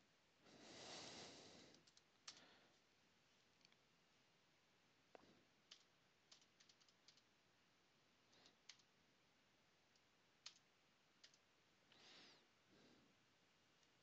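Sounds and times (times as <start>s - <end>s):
faint keyboard clicks: 1.7s - 2.6s, 5.1s - 7.3s, 8.3s - 8.9s, 9.9s - 11.5s.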